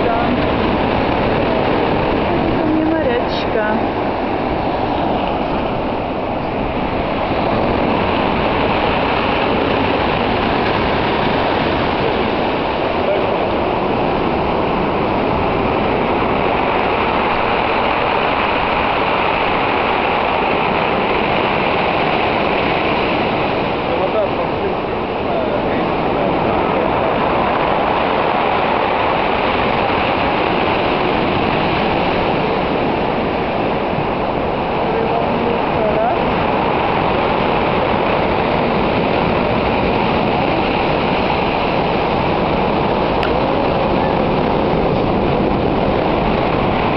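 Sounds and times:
surf on pebble beach: 0.0 - 46.9.

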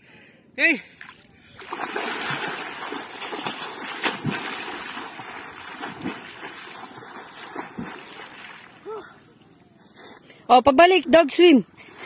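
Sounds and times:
water splashing from swimmer: 1.0 - 8.9.

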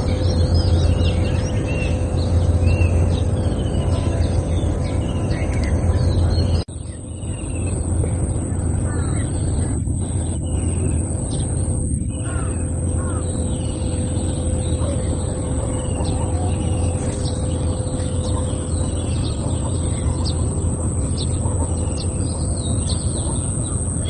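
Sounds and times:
birds chirping: 0.0 - 24.0
high-pitched whine: 0.0 - 24.0
steady low rumble: 0.0 - 24.0.

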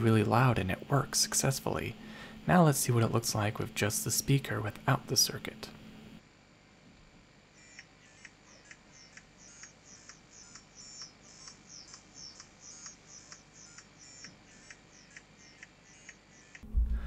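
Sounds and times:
faint ticking beat from speaker: 7.7 - 17.0.

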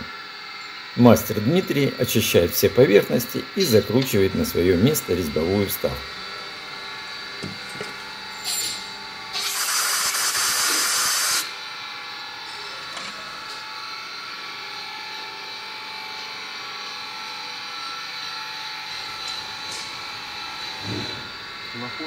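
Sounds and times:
steady hum: 0.0 - 16.5
compressed air blow gun blast: 9.3 - 11.5.

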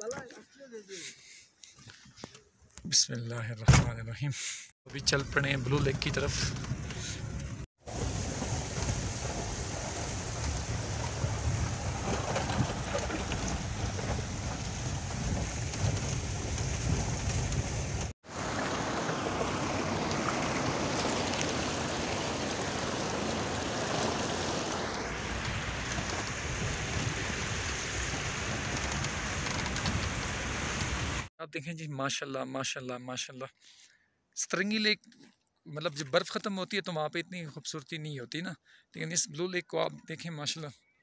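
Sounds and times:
vehicle rumbling over rocks: 5.6 - 31.2
wheels splashing through water: 7.8 - 31.3.

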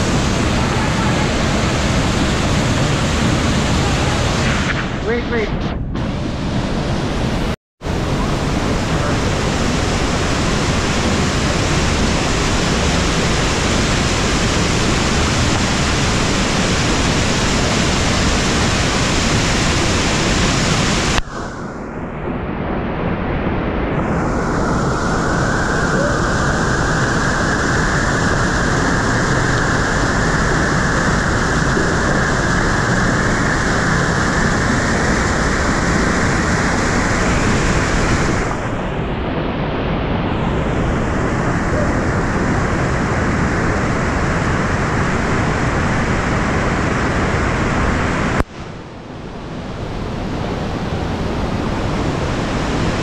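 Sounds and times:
waterfall crashing into pool: 7.9 - 21.2.

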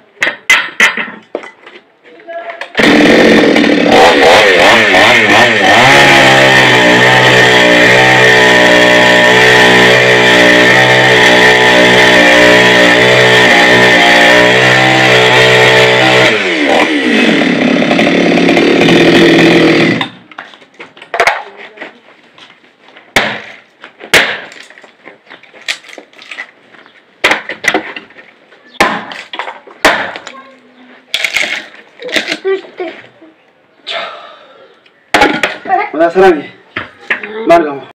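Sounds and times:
hatchet chopping wood: 0.2 - 1.1, 23.1 - 24.7, 27.2 - 27.9, 28.8 - 30.3, 35.1 - 35.6
chainsaw cutting log: 2.8 - 20.3.

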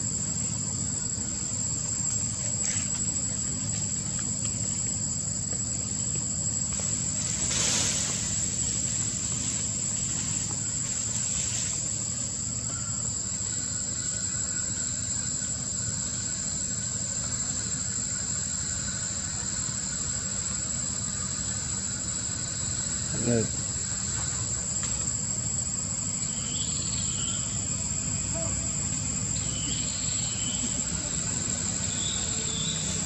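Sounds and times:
insects droning: 0.0 - 33.0
low background rumble: 0.0 - 33.0.

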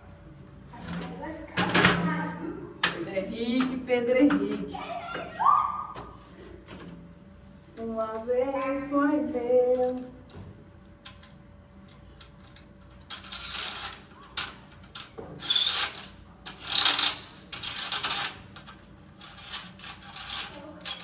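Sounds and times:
curtain runners sliding and rattling: 15.0 - 21.0.

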